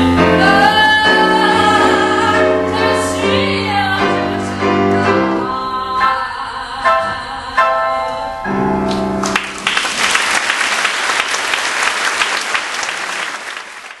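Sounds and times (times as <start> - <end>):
woman singing: 0.0 - 8.7
instrumental accompaniment: 0.0 - 10.1
audience applause: 9.2 - 14.0.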